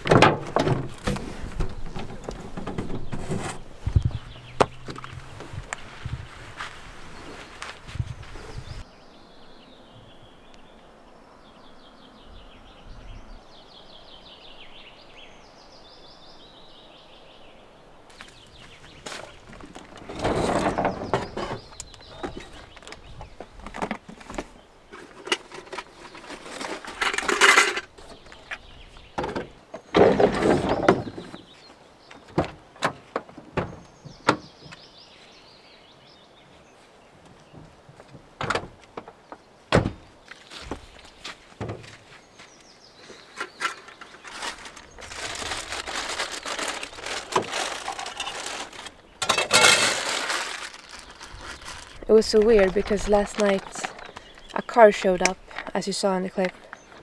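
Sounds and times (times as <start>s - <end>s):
birds singing: 1.6s - 57.0s
objects rustling: 18.1s - 28.7s, 43.0s - 57.0s.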